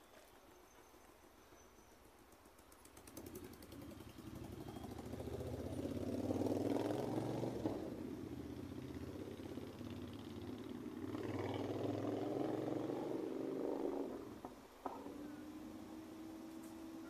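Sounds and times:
vehicle engine running: 0:03.1 - 0:12.7.

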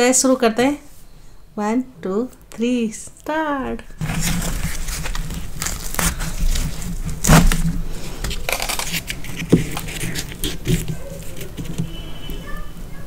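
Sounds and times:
bread tearing by hand: 0:04.0 - 0:12.6.

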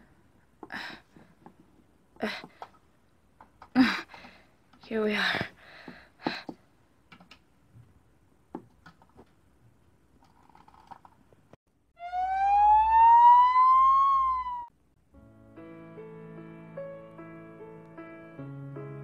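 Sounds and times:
plastic toys clicking: 0:10.2 - 0:11.2
siren wail: 0:12.0 - 0:14.7.

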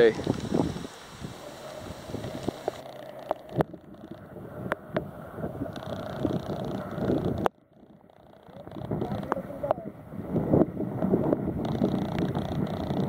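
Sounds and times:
choppy water: 0:00.0 - 0:13.0
wind buffeting microphone: 0:00.0 - 0:13.0
sharp clicks: 0:02.2 - 0:09.8, 0:11.6 - 0:13.0.

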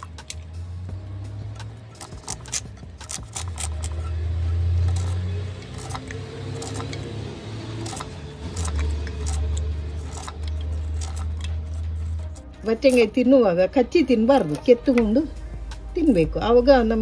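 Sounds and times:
knife scraping melon rind: 0:01.5 - 0:13.1.

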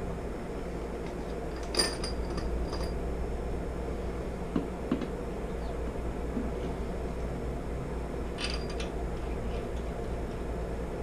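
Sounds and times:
metal hand tools clinking: 0:01.6 - 0:03.0, 0:08.4 - 0:08.9.

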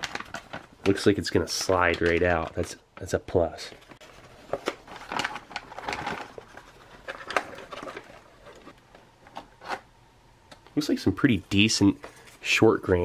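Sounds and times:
plastic pouch crinkling: 0:00.0 - 0:08.9.

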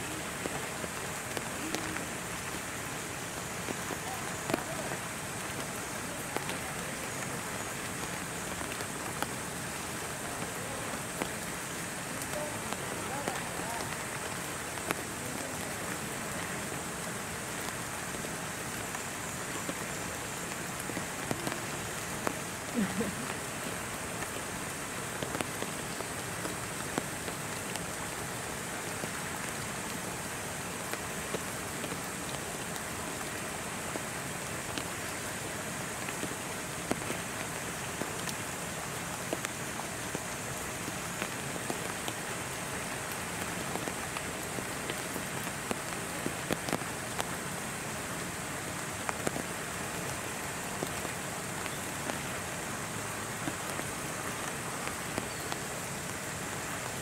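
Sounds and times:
steady rain falling: 0:00.0 - 0:57.0.

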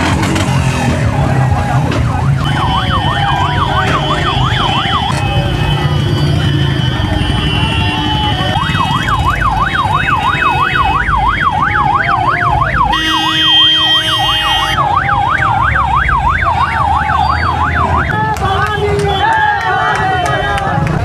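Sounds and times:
motorcycle engines rumbling: 0:00.0 - 0:21.0
electronic siren yelping: 0:00.3 - 0:18.5
steady horn: 0:12.9 - 0:14.8.

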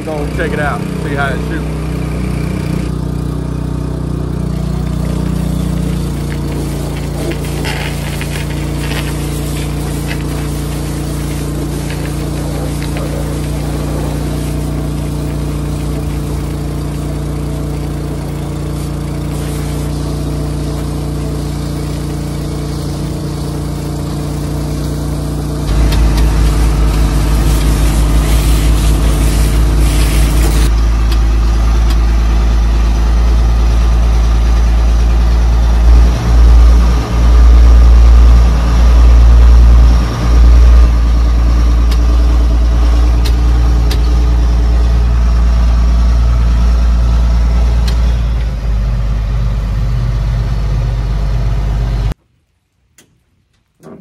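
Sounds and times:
water spraying: 0:00.0 - 0:48.2
farm machine engine from cab: 0:00.0 - 0:52.2, 0:53.0 - 0:54.0
water pump motor running: 0:00.0 - 0:52.2
low rumble: 0:25.6 - 0:52.2.

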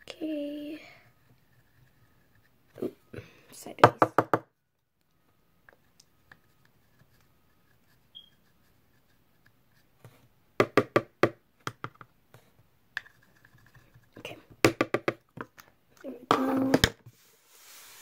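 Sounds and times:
pencil tapping on tabletop: 0:03.8 - 0:04.4, 0:10.6 - 0:12.1, 0:14.6 - 0:15.5
pencil tapping on plastic compact: 0:10.6 - 0:12.1.

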